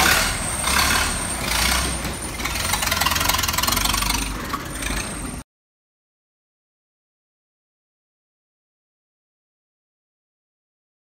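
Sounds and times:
car engine running: 0.0 - 5.4.

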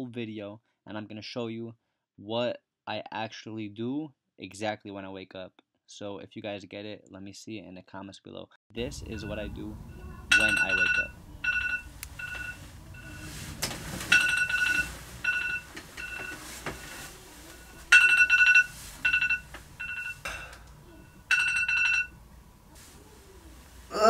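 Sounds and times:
phone alarm beeping: 8.8 - 22.2.

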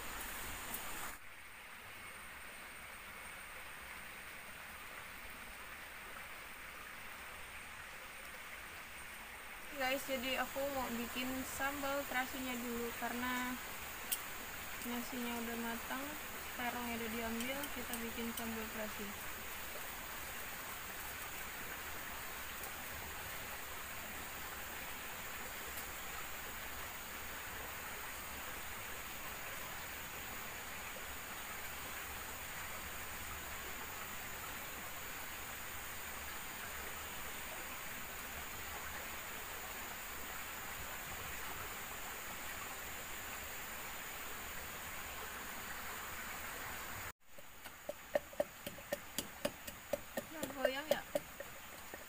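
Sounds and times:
water rushing: 0.0 - 52.0.

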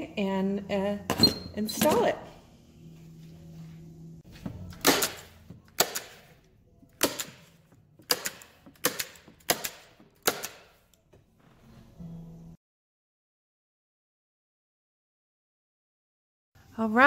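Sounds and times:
low steady hum: 0.0 - 5.7.

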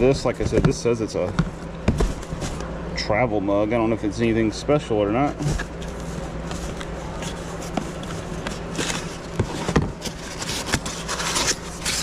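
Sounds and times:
steady low hum: 0.0 - 12.0
cardboard and foam rustling: 1.9 - 2.7, 5.4 - 12.0.

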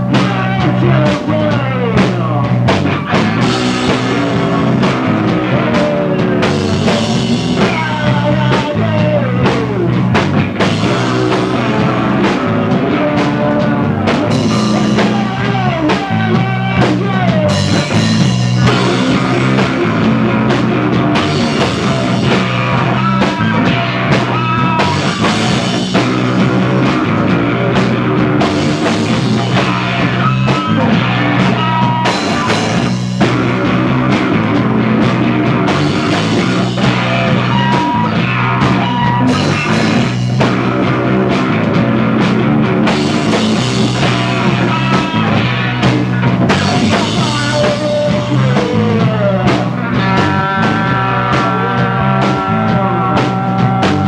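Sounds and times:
bass guitar line: 0.0 - 54.0
drum kit: 0.0 - 54.0
electric guitar: 0.0 - 54.0.

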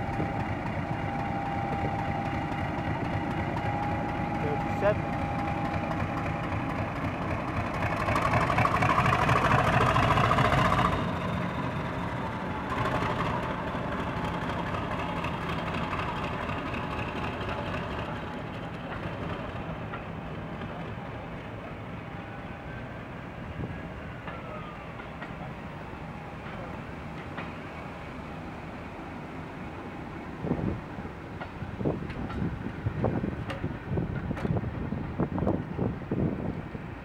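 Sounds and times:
diesel locomotive engine: 0.0 - 37.0.

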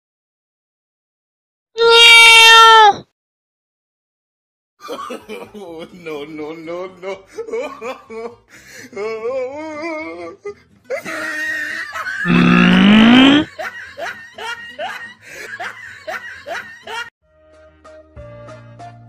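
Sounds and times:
human laughter bursts: 10.9 - 14.1
loud rising pitched sound: 12.3 - 13.5.

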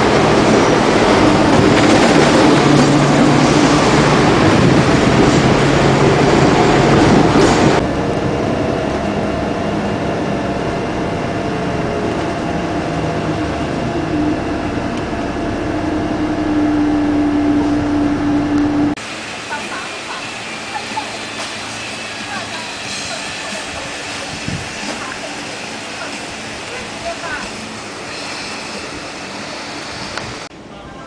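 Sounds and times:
loud street traffic: 0.0 - 31.0
hum: 7.8 - 19.0
vehicle running from inside: 7.8 - 19.0.

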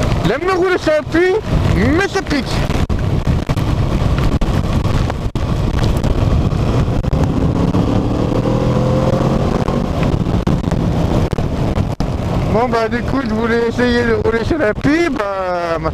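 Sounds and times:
wind buffeting microphone: 0.0 - 15.9
motorcycle engine accelerating: 2.6 - 13.0.

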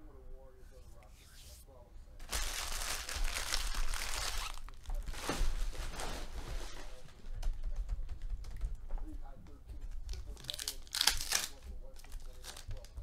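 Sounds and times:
foil wrappers crumpling: 2.2 - 6.8, 10.1 - 12.9.

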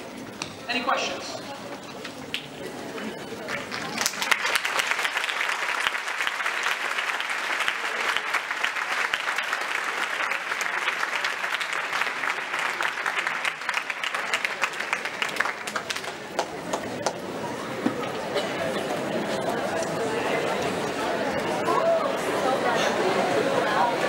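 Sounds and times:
large audience applauding: 3.3 - 17.3.

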